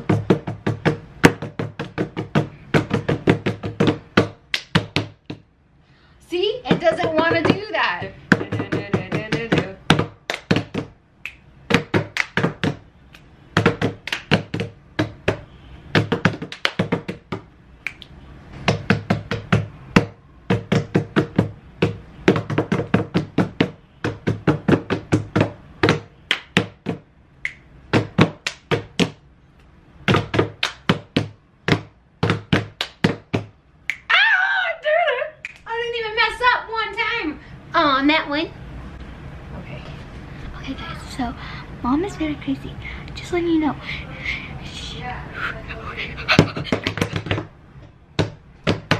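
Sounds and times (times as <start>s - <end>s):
hands clapping: 4.5s - 4.8s, 10.3s - 14.7s, 16.2s - 16.9s, 17.8s - 18.1s, 26.3s - 26.6s, 28.3s - 29.1s, 30.5s - 31.1s, 32.6s - 33.2s, 33.9s - 34.1s, 35.4s - 35.6s.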